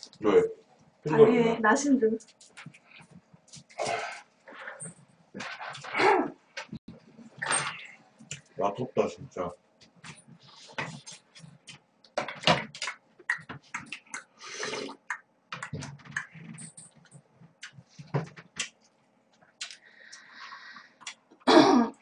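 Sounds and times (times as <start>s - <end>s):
person slurping and chewing noodles: 13.6s - 15.1s.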